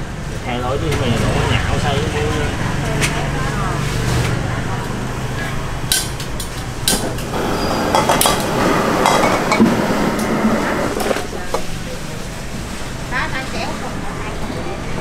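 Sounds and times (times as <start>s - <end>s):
food sizzling: 7.2s - 11.5s.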